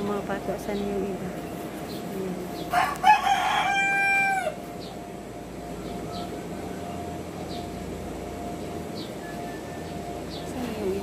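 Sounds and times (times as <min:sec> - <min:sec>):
rooster crowing: 0:02.7 - 0:04.7.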